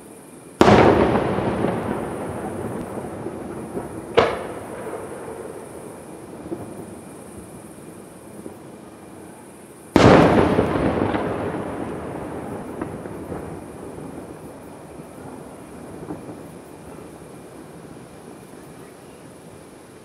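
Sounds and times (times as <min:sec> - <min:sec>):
low steady background noise: 0:00.0 - 0:20.0
firework boom: 0:00.6 - 0:08.7, 0:09.9 - 0:16.5.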